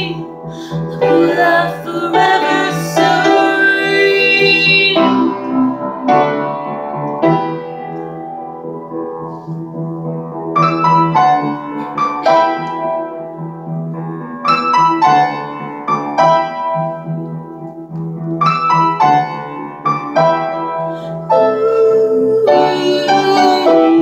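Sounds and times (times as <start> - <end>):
out-of-tune piano chords: 0.0 - 24.0.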